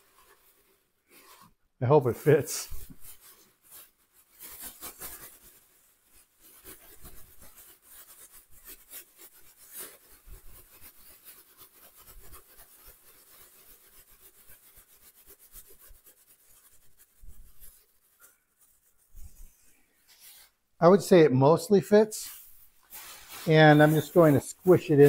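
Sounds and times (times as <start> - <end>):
plastic bag crinkling: 22.2 - 25.0.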